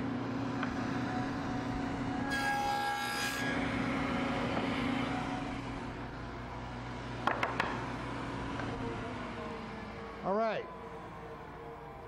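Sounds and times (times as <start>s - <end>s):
table saw running: 0.8s - 10.2s
saw cutting through wood board: 2.3s - 4.0s.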